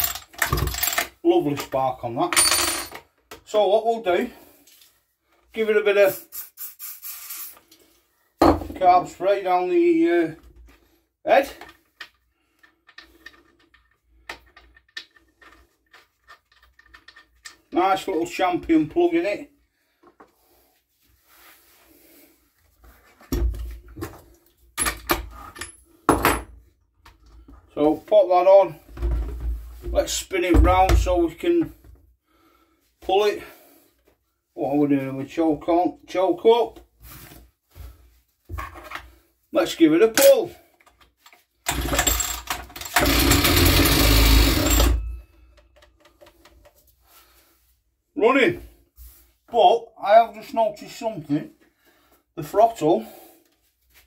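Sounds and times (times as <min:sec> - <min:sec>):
faint hiss: 0:06.0 - 0:07.8
tools clunking and knocking: 0:08.4 - 0:08.8, 0:24.8 - 0:27.6
trimmer engine starting and running: 0:43.0 - 0:44.7.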